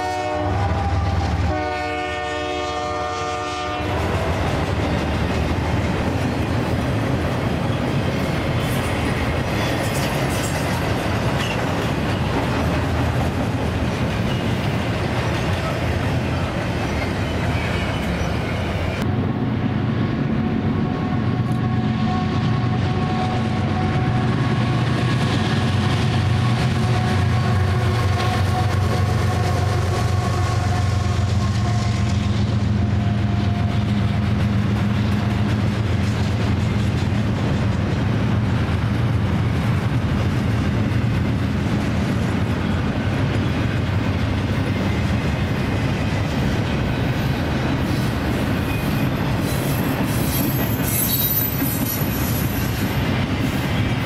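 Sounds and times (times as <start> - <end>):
locomotive engines droning: 0.0 - 54.0
freight cars rumbling and clattering: 3.9 - 21.4
high wheel squeal: 47.8 - 53.0.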